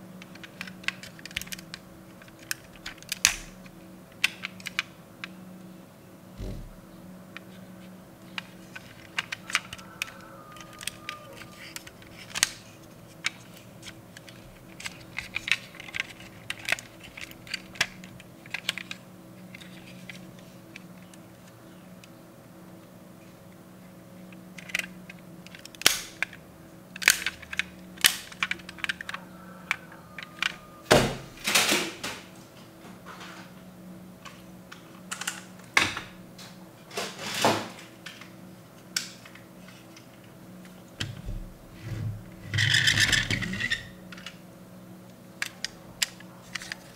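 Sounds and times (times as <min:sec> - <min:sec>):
toy car parts clicking: 0:08.4 - 0:12.6, 0:24.6 - 0:26.4, 0:27.0 - 0:30.6.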